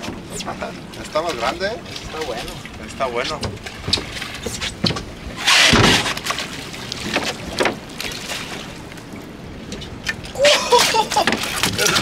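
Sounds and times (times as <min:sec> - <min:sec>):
water and wind noise: 0:00.0 - 0:12.0
rushing splash: 0:10.0 - 0:12.0.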